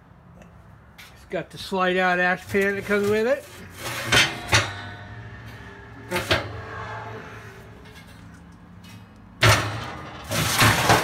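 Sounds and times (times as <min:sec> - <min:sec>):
metal ash pan clanking: 0:02.5 - 0:06.9, 0:07.8 - 0:11.0.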